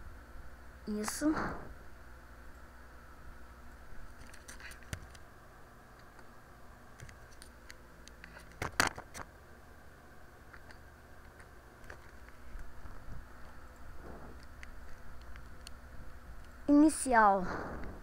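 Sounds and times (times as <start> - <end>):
faint steady hum: 0.0 - 18.0
computer mouse clicks: 4.2 - 5.2.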